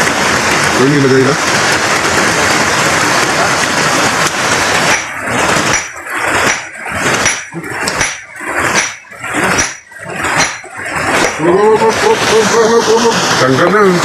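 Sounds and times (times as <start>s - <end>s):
rushing stream water: 0.0s - 14.0s
hammer striking stone: 4.9s - 11.4s.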